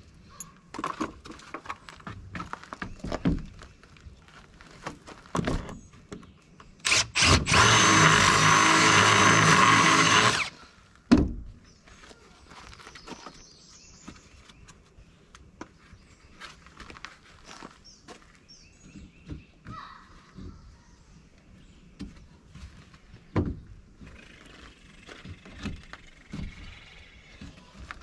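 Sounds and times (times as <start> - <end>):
cordless drill drilling plastic: 6.8 - 10.6
thump: 11.1 - 11.5.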